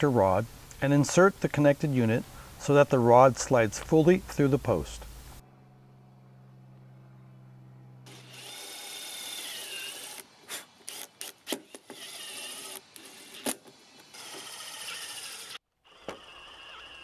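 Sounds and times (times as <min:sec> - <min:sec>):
impact driver whining: 0:08.0 - 0:17.0.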